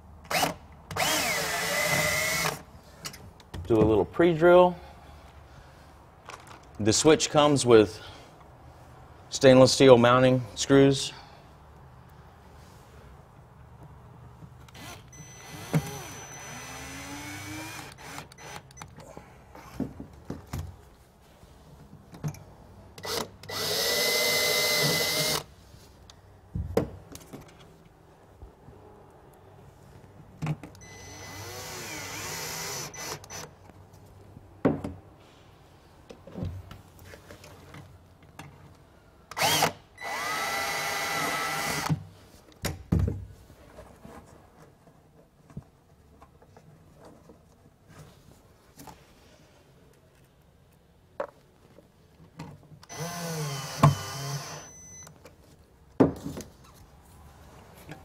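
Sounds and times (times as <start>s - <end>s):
cordless drill driving screws: 0.3s - 2.6s, 14.7s - 18.8s, 23.0s - 25.5s, 30.8s - 33.5s, 39.3s - 42.0s, 52.8s - 55.1s.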